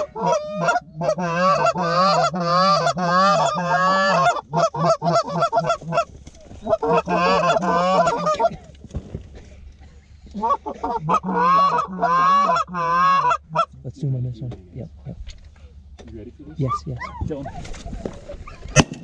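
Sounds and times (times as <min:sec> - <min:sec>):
goose call honks: 0:00.0 - 0:08.6, 0:10.4 - 0:13.8
short goose clucks: 0:00.0 - 0:08.6.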